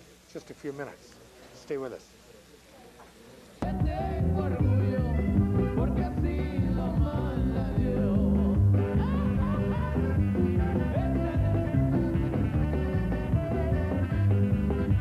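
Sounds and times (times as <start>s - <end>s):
band music with bass line: 3.6s - 15.0s.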